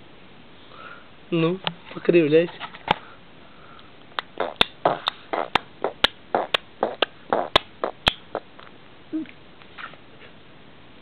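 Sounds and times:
baby lip smacks: 4.2 - 9.4.

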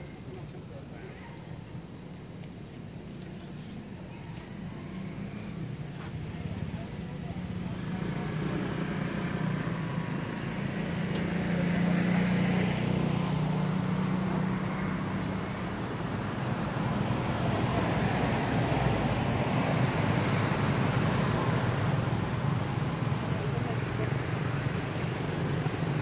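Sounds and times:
vehicle engine humming: 1.7 - 26.0.

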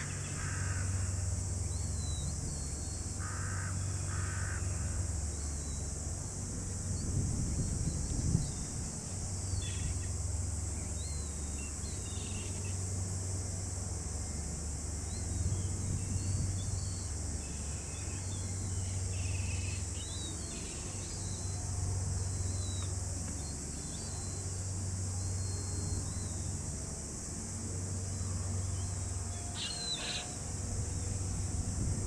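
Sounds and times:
high-pitched insect chorus: 0.0 - 32.0
low steady hum: 0.0 - 32.0
bird chirps: 29.5 - 30.4.

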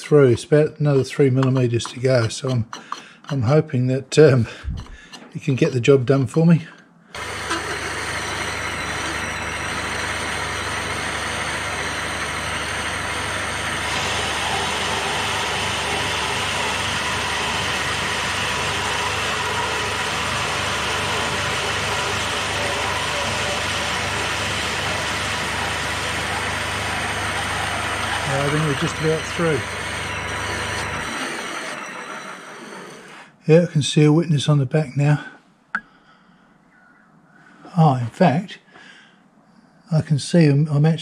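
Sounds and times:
lathe machine hum and whine: 7.2 - 33.1
hole saw cutting metal: 7.2 - 33.2.

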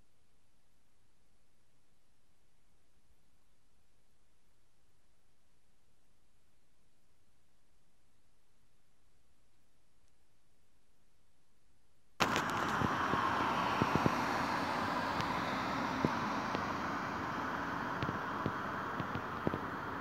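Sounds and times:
faint hiss: 12.2 - 20.0
highway traffic rushing: 12.2 - 20.0.

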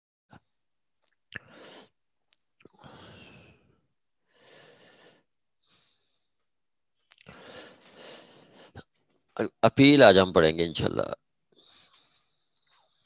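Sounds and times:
person breathing: 1.4 - 2.0, 2.7 - 6.5, 7.2 - 9.0, 11.5 - 13.0.

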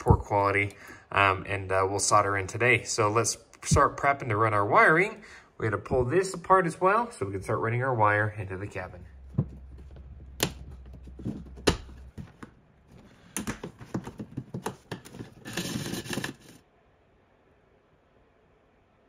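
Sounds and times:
low hum: 8.5 - 12.2
scratchy handling noise: 9.1 - 16.6.

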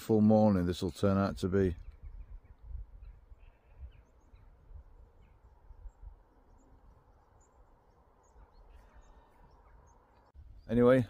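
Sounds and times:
distant birds chirping: 0.0 - 11.0
wind rumble on microphone: 1.3 - 7.1.

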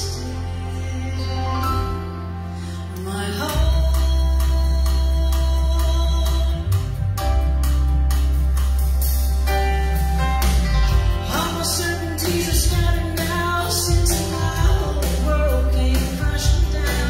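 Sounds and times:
gospel song with vocals: 0.0 - 7.2, 10.7 - 17.0.

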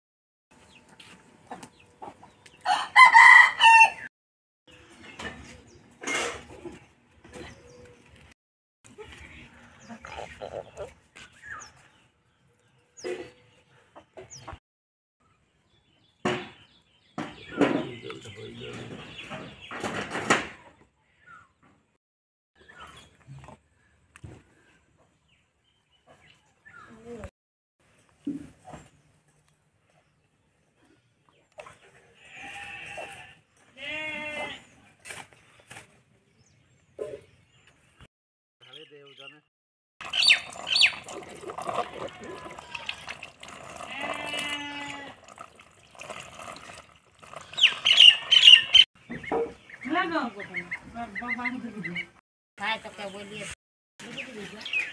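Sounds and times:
chickens clucking: 0.8 - 2.7, 8.9 - 11.2, 47.2 - 52.2
goat bleating: 32.2 - 34.7, 43.7 - 45.2
high bird chirps: 40.0 - 41.0, 47.4 - 49.9.

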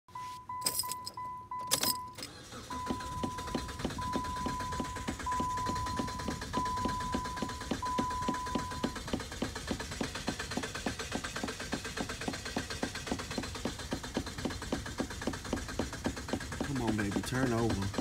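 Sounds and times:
car dashboard warning chime: 0.1 - 9.1.

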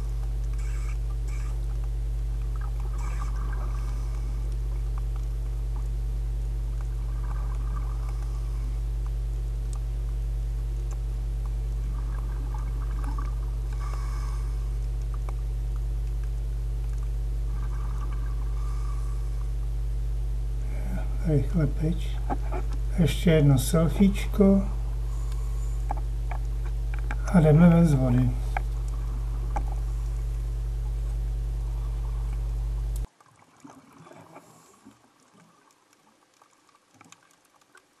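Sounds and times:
diver's exhaled bubbles gurgling: 0.0 - 34.8
underwater low rumble: 0.0 - 37.7
faint clicks: 0.1 - 6.0, 6.7 - 18.5, 25.1 - 27.3, 32.0 - 33.1, 34.8 - 38.0.

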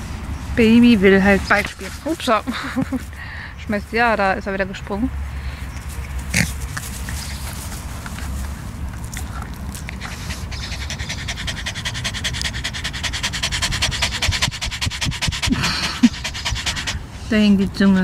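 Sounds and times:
dog panting fast: 9.9 - 17.4
wind rumble on microphone: 13.4 - 16.0.

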